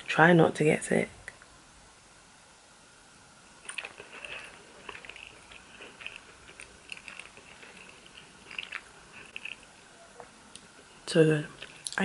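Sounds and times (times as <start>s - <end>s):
wet crackly chewing: 3.6s - 12.0s.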